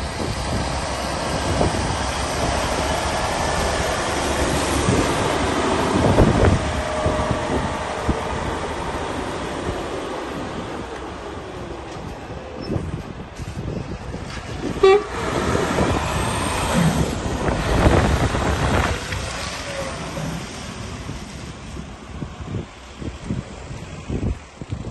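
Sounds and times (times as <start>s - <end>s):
truck diesel engine pulling away: 0.0s - 24.3s
wind rumbling on microphone: 0.0s - 24.9s
short horn toot: 14.8s - 15.2s.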